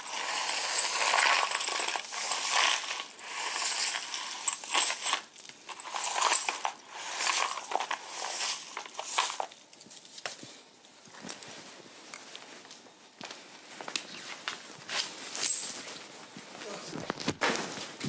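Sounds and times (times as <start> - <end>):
hard objects crunching and clinking: 0.0 - 10.4.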